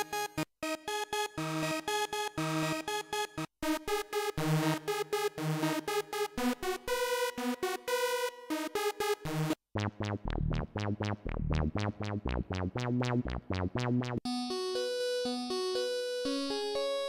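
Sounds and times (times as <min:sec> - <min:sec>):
choppy trance-gated synth lead: 0:09.8 - 0:14.2
synth bass notes: 0:09.8 - 0:14.2
sustained synth lead melody: 0:09.8 - 0:16.3.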